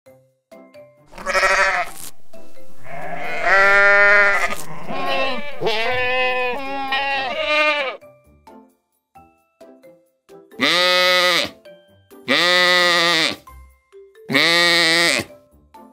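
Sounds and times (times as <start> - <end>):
sheep bleating: 1.1 - 2.0, 2.8 - 8.0, 10.6 - 11.6, 12.3 - 13.4, 14.3 - 15.3.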